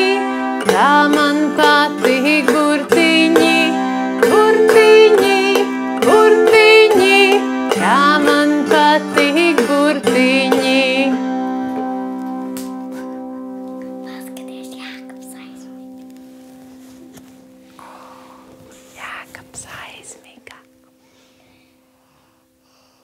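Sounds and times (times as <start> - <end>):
person singing wordless tune: 0.0 - 11.3.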